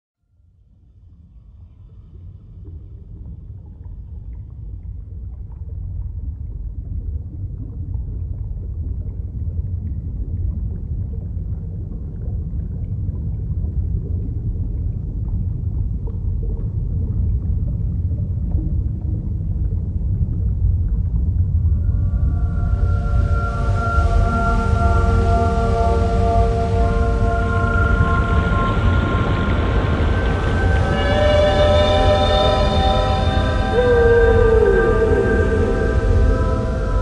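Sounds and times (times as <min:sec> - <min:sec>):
deep rumbling drone: 0:00.4 - 0:37.0
faint sustained tones: 0:21.7 - 0:37.0.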